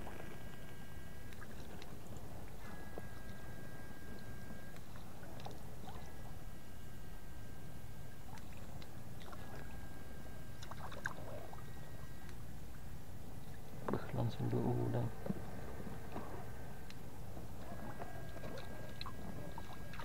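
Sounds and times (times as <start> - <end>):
electric high whine: 0.0 - 20.0
water sloshing: 8.3 - 9.8, 10.5 - 12.8, 17.6 - 20.0.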